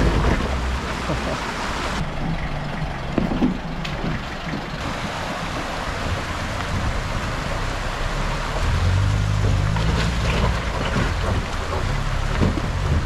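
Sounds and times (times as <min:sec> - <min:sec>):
stream water rushing: 0:00.0 - 0:02.1, 0:02.9 - 0:13.0
pickup engine running slowly: 0:00.0 - 0:09.8.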